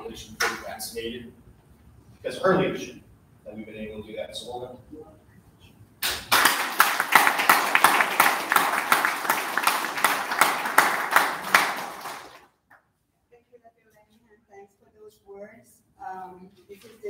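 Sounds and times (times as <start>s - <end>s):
audience applauding: 6.0s - 12.5s.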